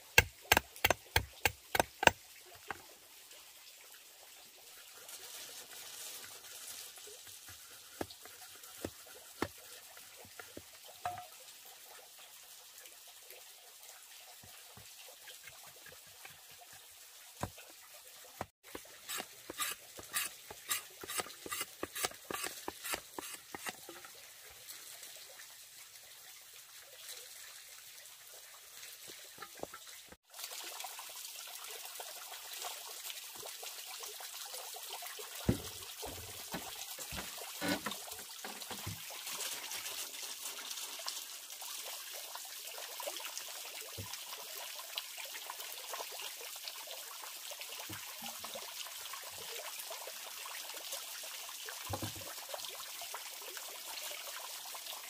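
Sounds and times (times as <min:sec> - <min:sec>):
machete chopping bamboo: 0:00.0 - 0:02.2
water trickling: 0:00.0 - 0:49.5.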